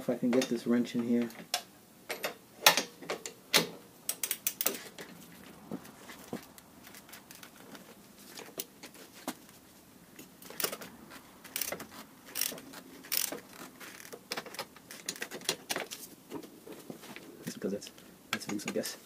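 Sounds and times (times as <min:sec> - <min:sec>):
ratchet wrench clicking: 0:11.5 - 0:14.2.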